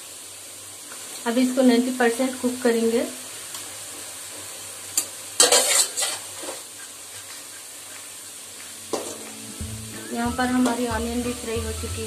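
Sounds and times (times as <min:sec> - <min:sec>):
onions sizzling in oil: 0:00.0 - 0:12.0
spoon scraping pan: 0:05.0 - 0:08.1.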